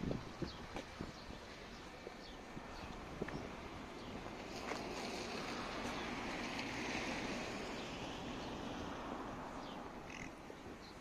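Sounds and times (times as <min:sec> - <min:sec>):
car passing: 0:01.4 - 0:11.0.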